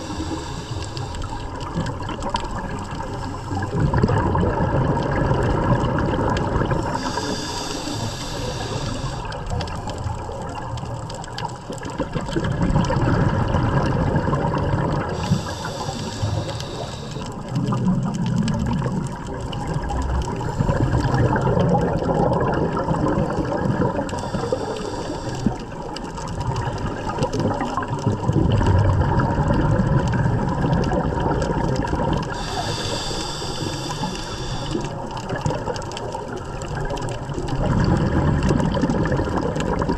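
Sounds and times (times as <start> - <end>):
hissing regulator inhale: 0.0 - 1.6, 3.0 - 3.8, 6.8 - 9.7, 15.1 - 17.5, 20.4 - 21.3, 24.0 - 25.8, 32.3 - 35.0
exhaled bubbles rushing: 0.0 - 39.9.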